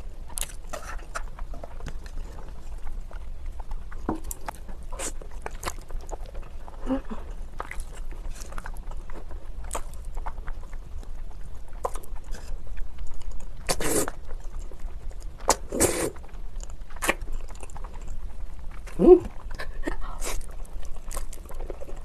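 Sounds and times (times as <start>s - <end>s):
person slurping and chewing noodles: 0.3s - 18.2s
wet mouth clicks: 17.0s - 17.2s.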